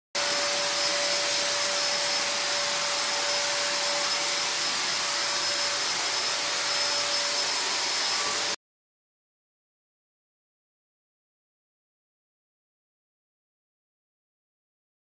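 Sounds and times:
motor whine: 0.2s - 8.6s.

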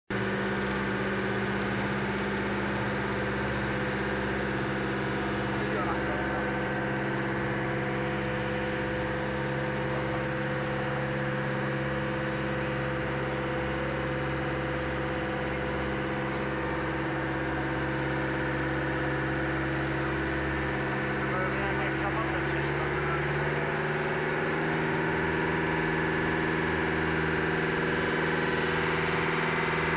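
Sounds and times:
boat engine humming: 0.1s - 29.9s.

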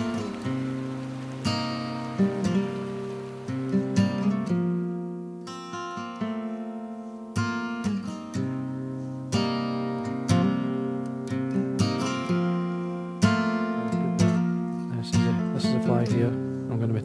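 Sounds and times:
acoustic guitar chords: 0.0s - 17.0s.

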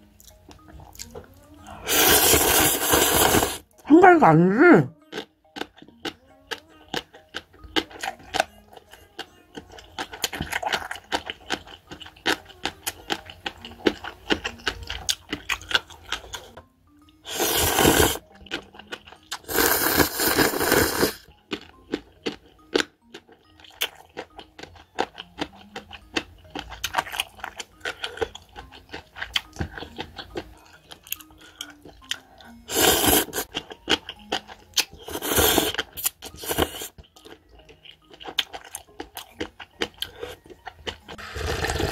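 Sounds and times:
light background music: 0.0s - 41.9s
chewing: 0.1s - 3.8s, 5.0s - 41.9s
noodles being slurped: 1.7s - 3.6s, 17.3s - 18.2s, 19.4s - 21.2s, 32.7s - 33.5s, 35.0s - 36.9s, 41.2s - 41.9s.

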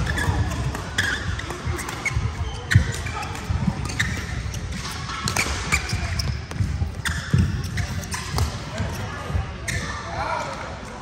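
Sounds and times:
racket hitting shuttlecock: 0.0s - 8.6s
shoes squeaking on court: 0.0s - 10.1s.

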